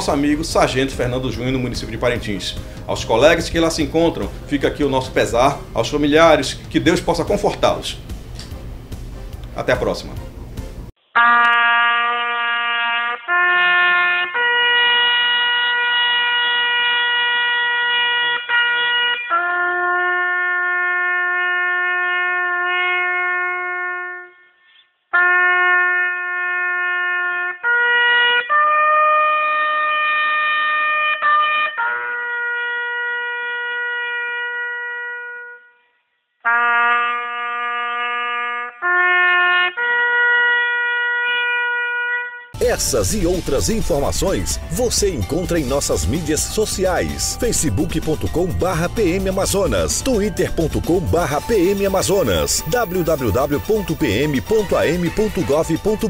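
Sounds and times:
trumpet playing slow funeral call: 11.2s - 56.0s.

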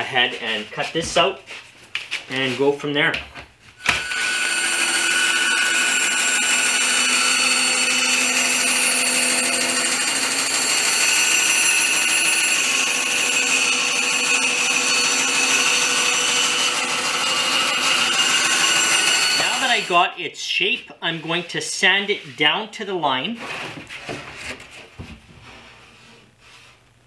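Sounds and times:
bandsaw cutting wood: 3.8s - 20.1s.

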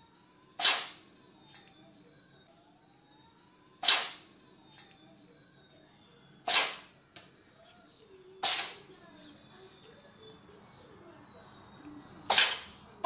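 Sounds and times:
cat sneezing: 6.5s - 6.8s, 8.4s - 8.8s, 12.3s - 12.7s.

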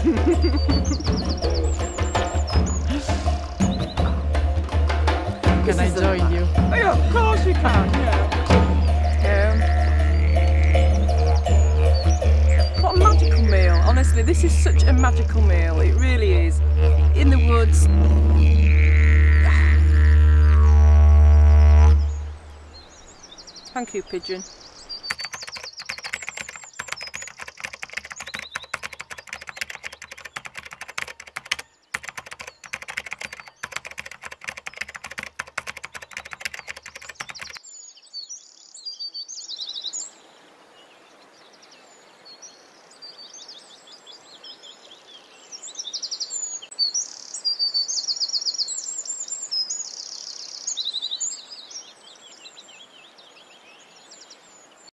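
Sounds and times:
birds chirping and trilling: 0.0s - 54.9s
dense crackling clicks: 25.0s - 37.6s.

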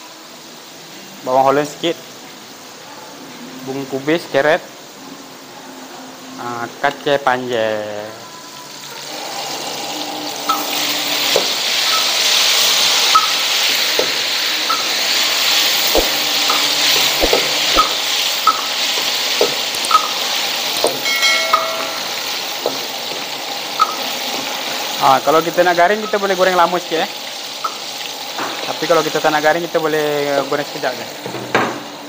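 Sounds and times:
chicken deep-frying in oil: 0.0s - 32.0s
metal spatula clinking on wok: 21.0s - 22.3s.

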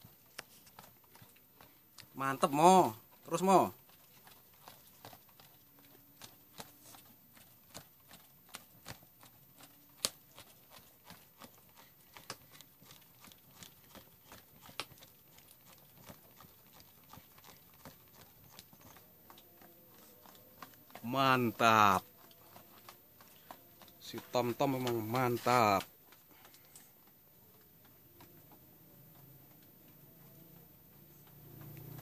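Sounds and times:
wood fire crackling and popping: 0.0s - 32.0s.

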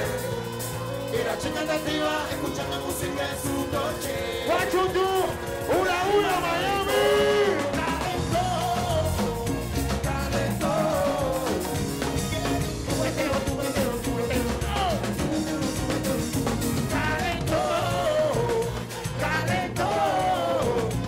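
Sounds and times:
man singing: 0.0s - 21.0s
reggaeton band beat: 0.0s - 21.0s.

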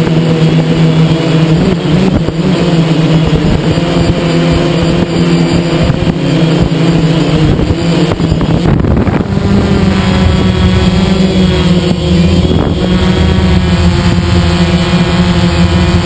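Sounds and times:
drone propellers whirring: 0.0s - 16.0s
wind buffeting microphone: 4.9s - 14.4s.

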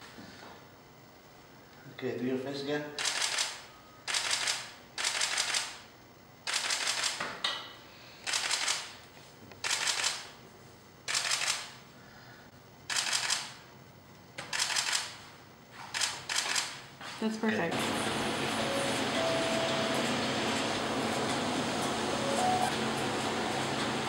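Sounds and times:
camera shutter bursts: 3.0s - 5.8s, 6.4s - 7.2s, 8.2s - 9.0s, 9.6s - 10.4s, 11.1s - 11.8s, 12.9s - 13.6s, 14.4s - 15.2s, 15.9s - 16.8s.

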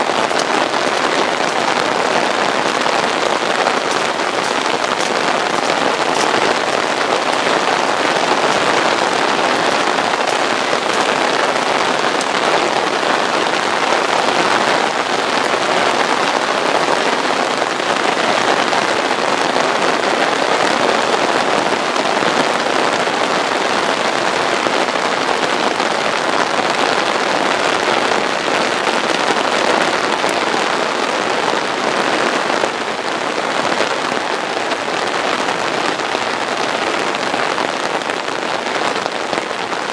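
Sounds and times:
raindrops ticking: 0.0s - 16.2s
heavy rain: 0.0s - 39.9s.

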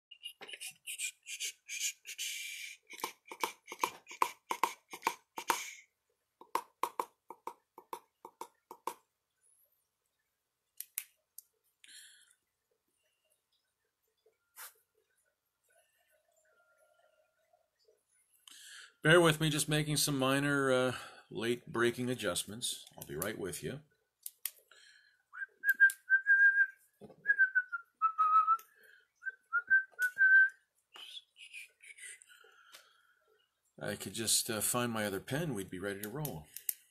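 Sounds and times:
man whistling: 25.3s - 28.6s, 29.2s - 32.2s.

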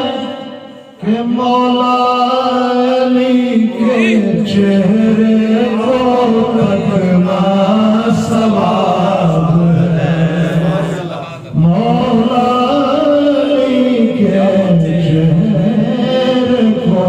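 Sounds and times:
man singing into a microphone: 0.0s - 17.0s.

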